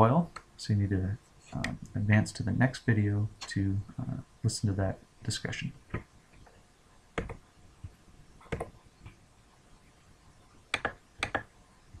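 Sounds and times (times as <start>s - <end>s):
faint room hiss: 0.0s - 12.0s
computer mouse clicks: 7.2s - 7.4s, 8.4s - 9.2s, 10.7s - 11.5s.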